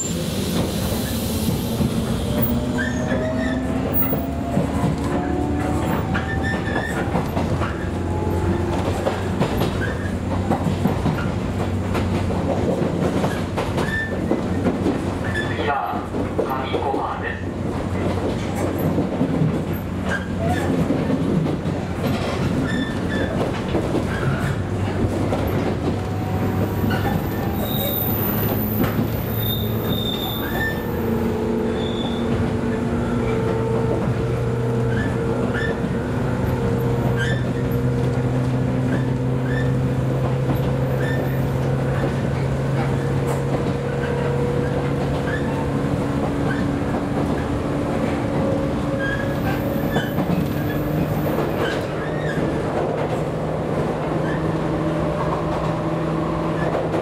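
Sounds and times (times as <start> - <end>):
wheels squealing: 0.0 - 10.2, 13.2 - 14.6, 22.2 - 33.4, 34.7 - 37.9, 38.8 - 43.2, 48.9 - 52.7
rail-joint clicks: 0.0 - 57.0
train wheels rumbling: 0.0 - 57.0.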